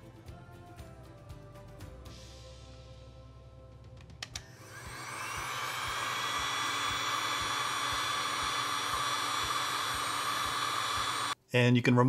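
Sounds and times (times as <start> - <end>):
heat gun fan blowing: 4.4 - 11.4.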